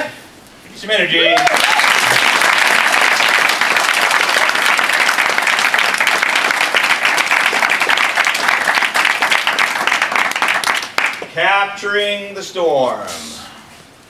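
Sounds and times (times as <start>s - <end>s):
group applauding: 1.2s - 11.4s.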